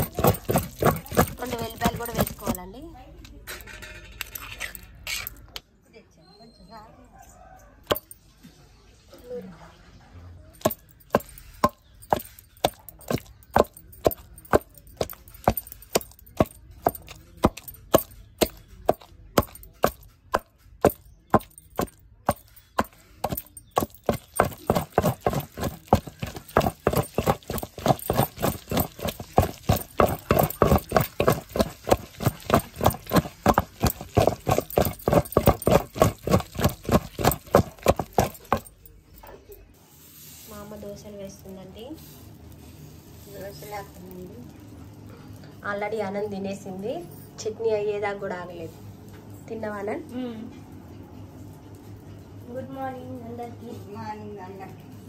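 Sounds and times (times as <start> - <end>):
pestle pounding in stone mortar: 0.0 - 2.7, 7.8 - 8.1, 10.6 - 38.8.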